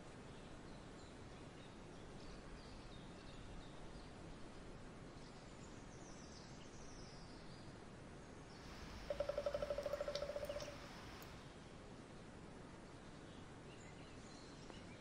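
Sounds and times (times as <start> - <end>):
steady low hiss: 0.0 - 14.9
distant birds chirping: 8.5 - 11.4
short descending bird calls: 8.8 - 11.3.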